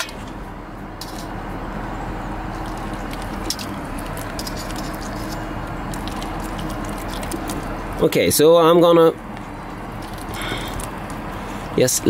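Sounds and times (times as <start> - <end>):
liquid splashing onto foil: 5.9 - 7.8
pump humming: 9.2 - 11.8.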